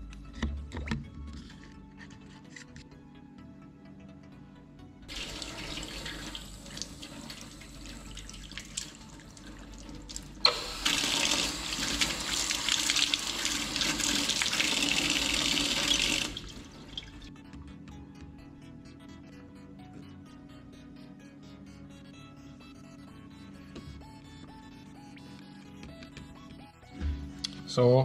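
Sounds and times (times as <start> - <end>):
water running from a tap: 5.1 - 17.2.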